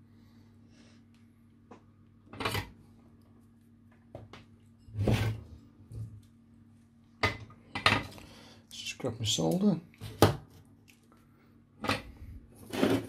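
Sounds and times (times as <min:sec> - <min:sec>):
faint steady hum: 0:00.0 - 0:13.0
objects scraping and clunking: 0:04.8 - 0:06.2, 0:11.8 - 0:13.0.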